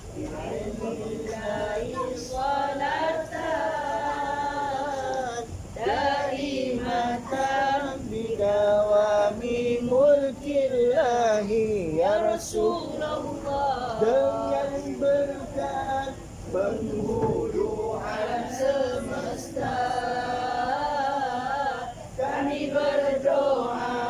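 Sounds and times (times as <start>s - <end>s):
man singing: 7.4s - 12.9s, 14.0s - 19.2s.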